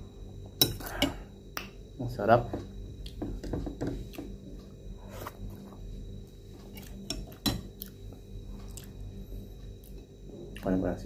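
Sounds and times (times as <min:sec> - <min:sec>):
faint steady hum: 0:00.0 - 0:11.0
taps against a plate: 0:02.5 - 0:04.4
person chewing: 0:06.6 - 0:09.1.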